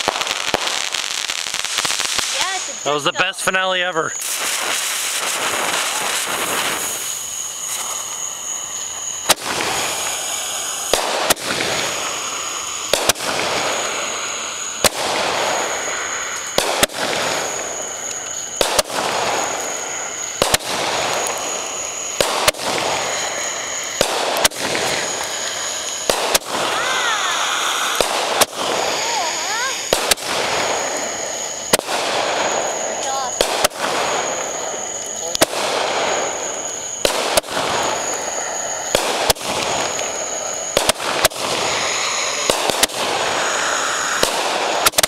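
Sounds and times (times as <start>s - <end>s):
firework crackling hiss: 0.0s - 45.0s
firework pops: 4.1s - 13.8s, 14.8s - 38.2s, 38.8s - 45.0s.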